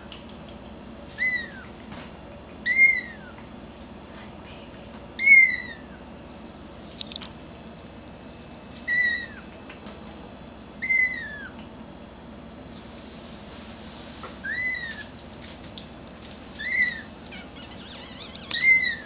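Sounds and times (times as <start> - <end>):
kitten meowing: 1.2 - 1.7, 2.6 - 3.4, 5.2 - 6.0, 8.9 - 9.4, 10.8 - 11.6, 14.4 - 15.1, 16.6 - 19.0.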